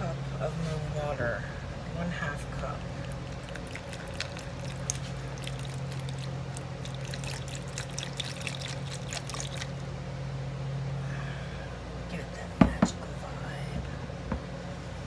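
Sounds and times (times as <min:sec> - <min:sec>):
low steady hum: 0:00.0 - 0:15.0
water trickling into plastic cup: 0:02.8 - 0:09.8.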